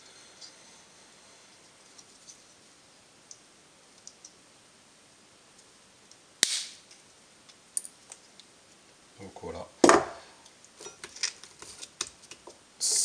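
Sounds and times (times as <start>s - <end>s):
sharp loud plastic snap: 6.4s - 6.8s.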